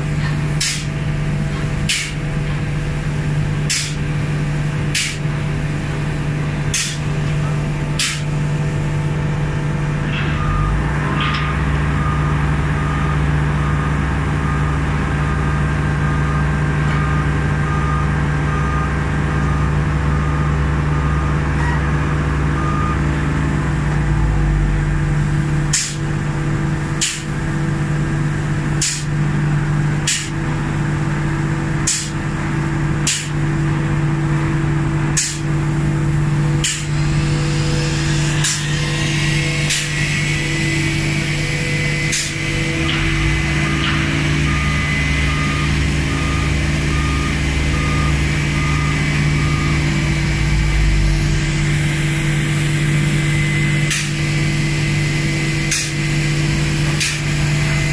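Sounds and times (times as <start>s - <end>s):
low motor rumble: 0.0s - 57.9s
lift motion alarm beeping: 10.2s - 21.9s, 22.5s - 23.0s, 36.7s - 51.0s
painting machinery drone: 20.7s - 57.9s.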